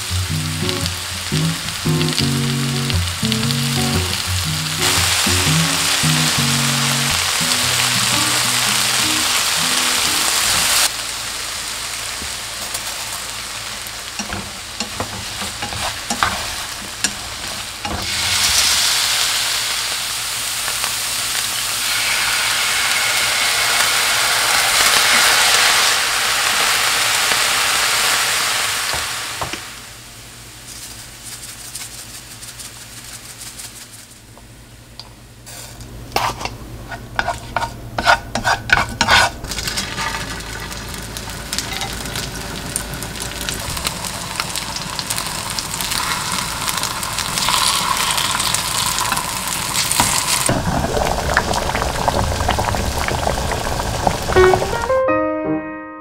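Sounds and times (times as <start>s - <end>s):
food sizzling in frying pan: 0.0s - 34.1s, 37.2s - 54.9s
oil popping and ticking: 41.5s - 54.9s.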